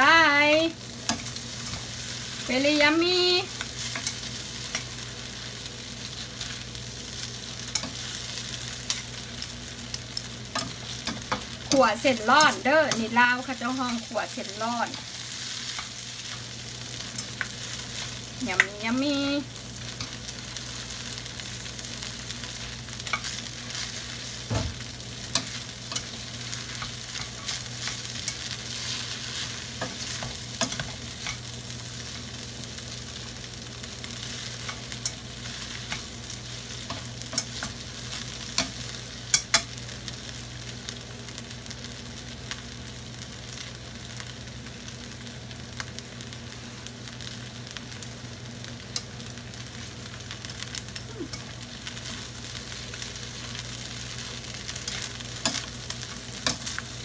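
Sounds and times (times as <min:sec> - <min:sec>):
food sizzling in a skillet: 0:00.0 - 0:57.0.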